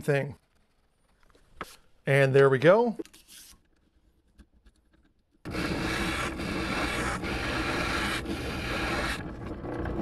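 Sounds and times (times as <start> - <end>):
spindle sander sanding wood: 5.5 - 10.0.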